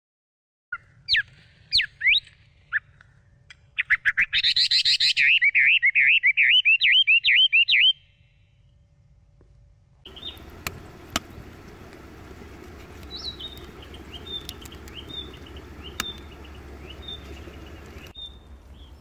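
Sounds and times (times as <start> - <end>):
small bird chirping: 10.1 - 19.0.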